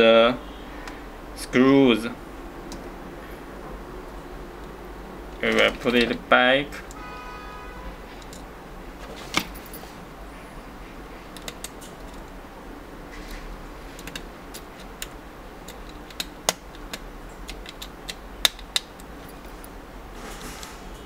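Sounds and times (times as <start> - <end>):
plastic parts clicking: 14.0 - 19.1.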